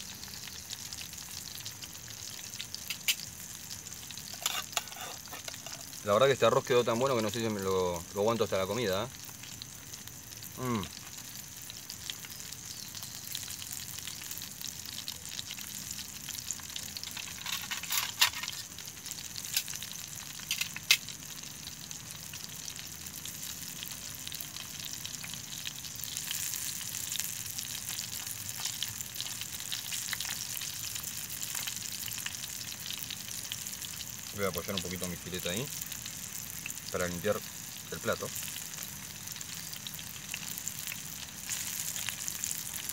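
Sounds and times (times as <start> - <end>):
fish frying in oil: 0.0 - 42.9.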